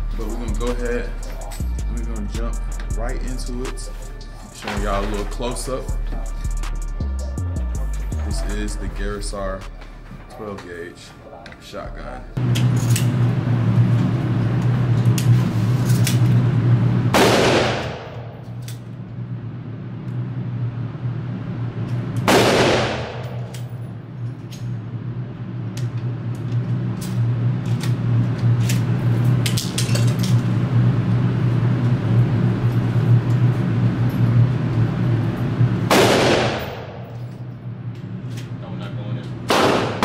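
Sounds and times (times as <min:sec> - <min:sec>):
steady low hum: 0:00.0 - 0:40.0
gunshots ringing indoors: 0:17.1 - 0:18.8, 0:22.2 - 0:23.8, 0:35.9 - 0:37.4, 0:39.5 - 0:40.0.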